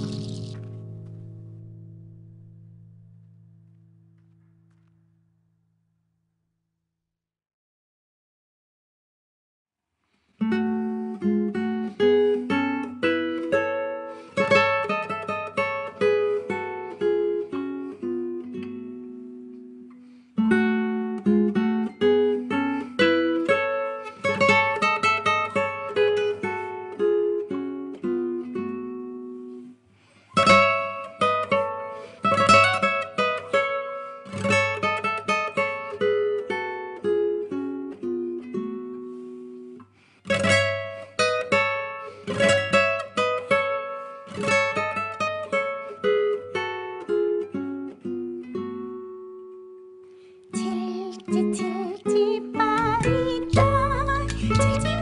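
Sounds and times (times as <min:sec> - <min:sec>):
plucked string melody: 0:00.0 - 0:04.7, 0:30.4 - 0:55.0
strummed chords: 0:50.5 - 0:55.0.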